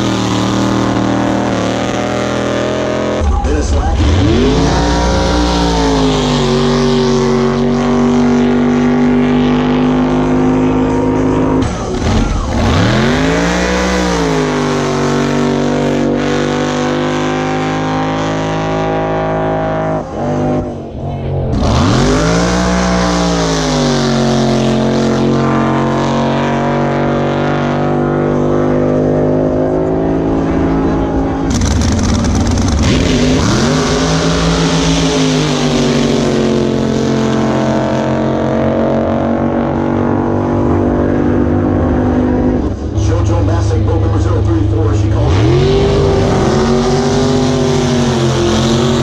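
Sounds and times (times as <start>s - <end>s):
racing boat engines revving: 0.0s - 49.0s.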